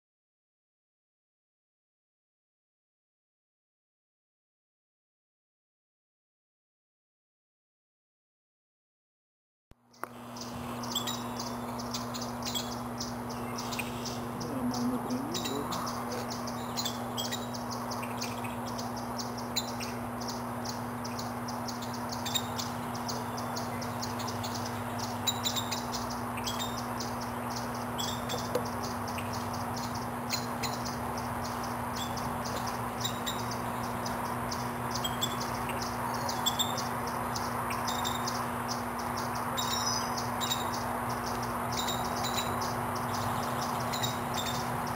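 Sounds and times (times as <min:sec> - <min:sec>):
steady low hum: 0:09.8 - 0:44.9
birds peeping: 0:09.9 - 0:44.9.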